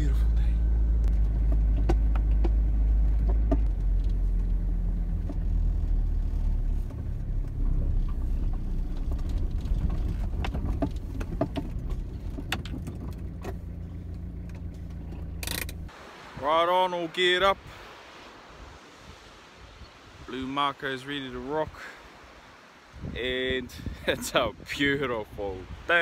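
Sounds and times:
van engine and road rumble: 0.0s - 16.5s
clicks and rattles in cab: 7.4s - 15.9s.

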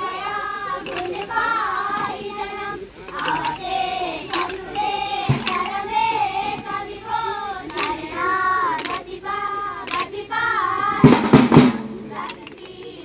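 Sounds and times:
children singing: 0.0s - 13.0s
wooden sticks knocking: 0.7s - 2.3s, 3.0s - 6.8s, 7.7s - 9.1s, 9.8s - 10.2s, 12.1s - 12.9s.

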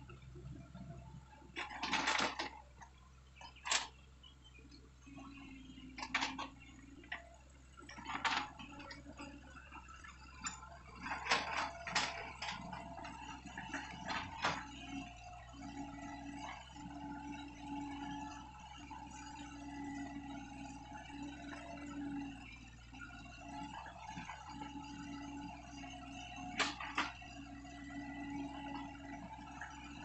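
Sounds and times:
diesel engine hum: 0.0s - 2.0s, 2.6s - 30.0s
excavator clanks and knocks: 0.0s - 4.1s, 4.7s - 18.0s, 23.4s - 30.0s.

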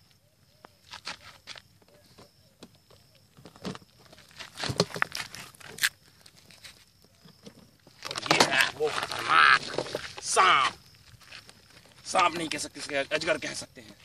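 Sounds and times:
feet shuffling on gravel: 7.9s - 13.0s.

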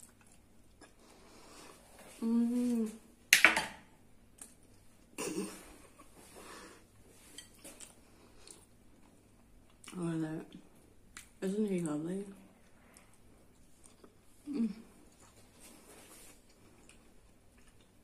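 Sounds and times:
hummed mmm: 0.8s - 3.1s, 14.0s - 15.4s.

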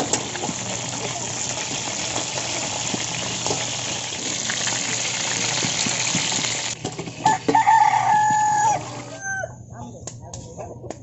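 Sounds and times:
fish sizzling in hot oil: 0.0s - 9.1s
rooster crowing: 7.2s - 9.6s.

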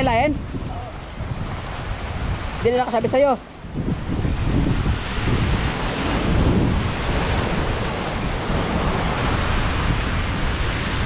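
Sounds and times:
wind buffeting microphone: 0.0s - 11.0s
surf breaking against rocks: 3.8s - 11.0s.

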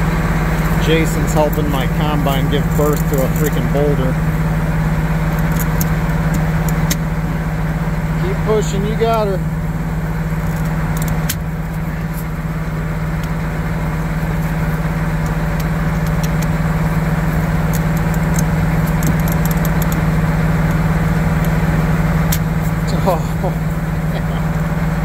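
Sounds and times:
diesel engine idling: 0.0s - 25.0s
pry bar clicking and scraping: 5.3s - 7.0s, 15.2s - 16.7s, 17.4s - 21.6s.

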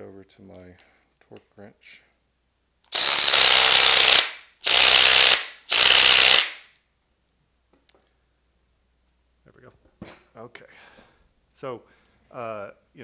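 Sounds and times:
impact wrench hammering: 2.9s - 6.7s.

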